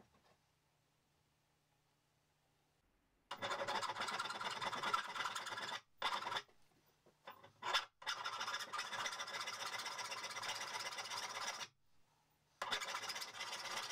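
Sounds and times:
file rasping on steel: 0:03.3 - 0:06.5, 0:07.3 - 0:11.7, 0:12.6 - 0:13.9.

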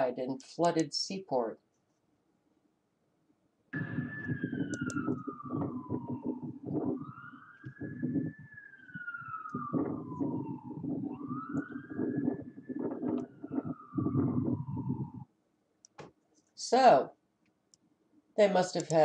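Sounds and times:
choppy low noise: 0:03.8 - 0:15.2
emergency siren wailing: 0:03.8 - 0:15.3.

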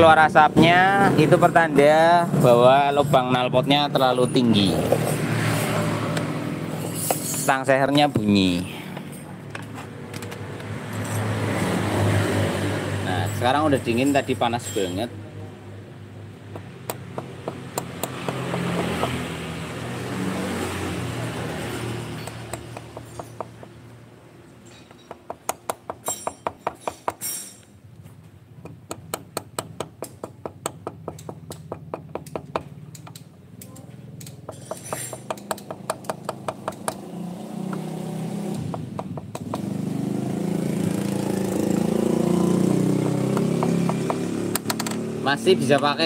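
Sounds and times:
engine hum: 0:31.1 - 0:46.0.

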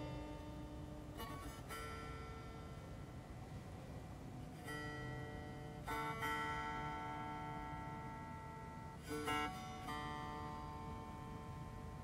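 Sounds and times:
plucked dulcimer music: 0:00.0 - 0:02.7, 0:04.5 - 0:12.0.

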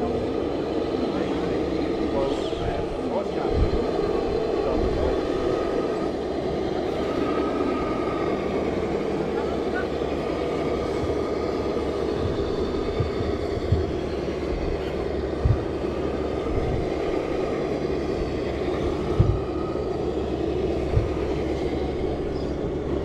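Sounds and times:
dull thumps on wooden boards: 0:12.2 - 0:14.8, 0:15.4 - 0:15.8, 0:19.2 - 0:19.4.

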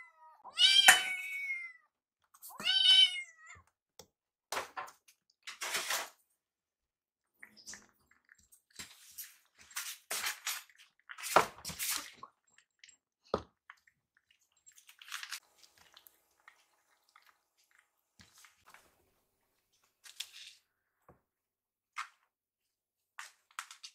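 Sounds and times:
kittens chewing and lapping: 0:07.3 - 0:19.1.

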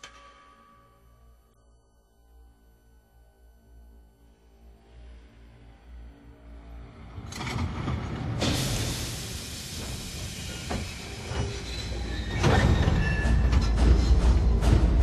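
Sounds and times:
steam locomotive exhaust chuffs: 0:08.3 - 0:15.0
steam hissing from drain cocks: 0:08.4 - 0:12.3.

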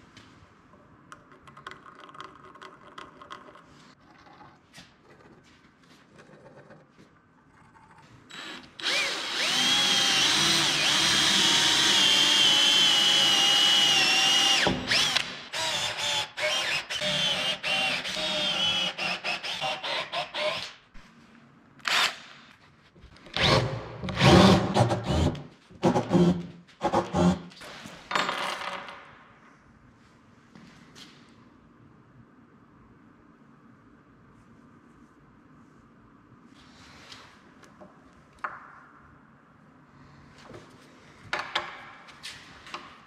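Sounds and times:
cordless drill drilling into wood: 0:08.4 - 0:20.6.

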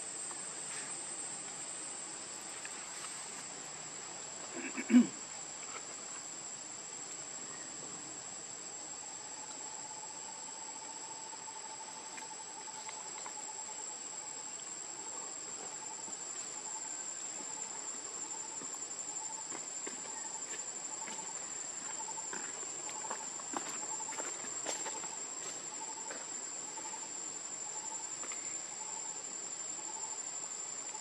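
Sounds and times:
pulsing insect chirp: 0:00.0 - 0:31.0
high-pitched insect trill: 0:08.9 - 0:31.0.

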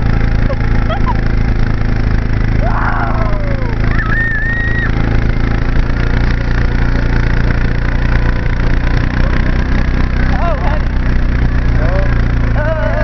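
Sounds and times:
vehicle engine running: 0:00.0 - 0:13.0
person shouting: 0:02.6 - 0:05.0, 0:11.8 - 0:13.0
person whooping: 0:02.6 - 0:05.0.

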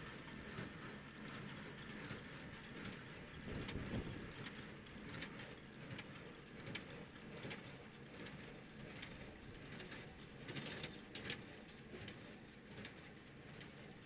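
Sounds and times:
faint tractor engine hum: 0:00.0 - 0:14.0.

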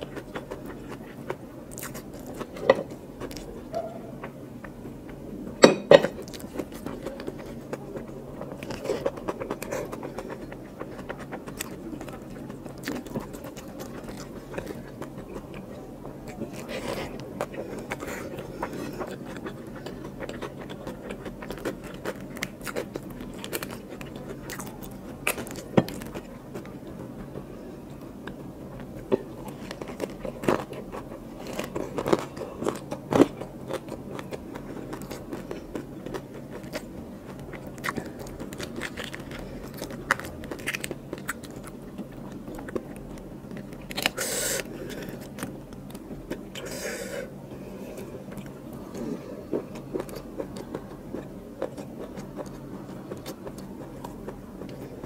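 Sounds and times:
person chewing food: 0:00.0 - 0:55.0.

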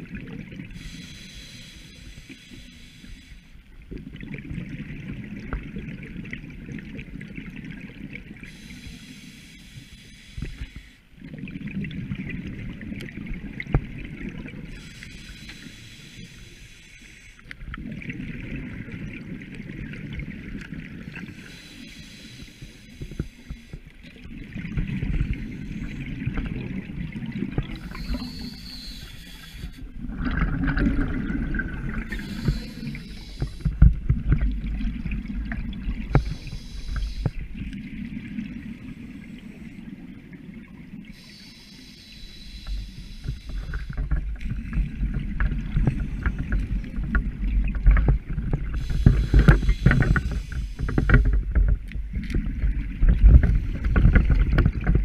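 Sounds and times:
hissing regulator inhale: 0:00.8 - 0:03.6, 0:08.4 - 0:11.1, 0:14.7 - 0:17.5, 0:21.2 - 0:23.8, 0:27.8 - 0:29.9, 0:31.9 - 0:33.9, 0:36.1 - 0:37.5, 0:41.1 - 0:44.0, 0:48.7 - 0:51.2
bubbling exhale underwater: 0:30.0 - 0:37.2.

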